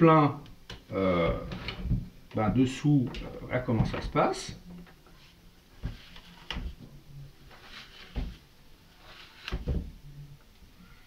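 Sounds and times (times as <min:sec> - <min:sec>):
plastic knocking and scraping: 0:00.7 - 0:04.9, 0:05.8 - 0:08.4, 0:09.1 - 0:10.0.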